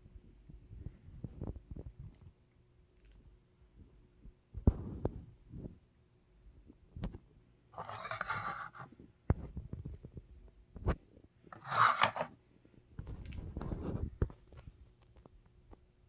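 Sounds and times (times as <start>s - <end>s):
rubbing and scraping handling noise: 7.8s - 15.1s.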